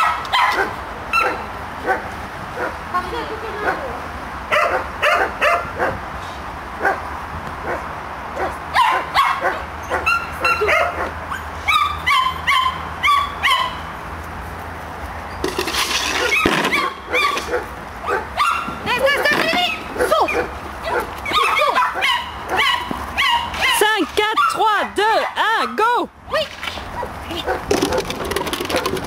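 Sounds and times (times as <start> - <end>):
dog barking: 0.0 - 2.8, 4.5 - 6.0, 6.8 - 7.0, 7.6 - 13.8, 16.3 - 18.8, 20.0 - 23.8, 27.0 - 28.1.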